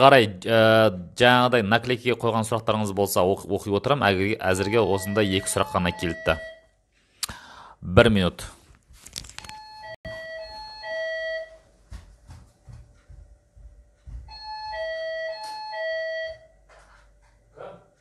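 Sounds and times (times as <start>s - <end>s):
electronic two-tone doorbell chime: 4.6s - 6.7s, 9.5s - 11.6s, 14.3s - 16.6s.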